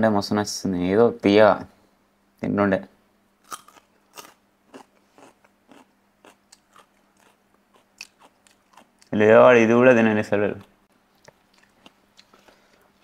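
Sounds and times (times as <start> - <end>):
raw carrot being chewed: 3.5 - 9.2, 10.6 - 12.8.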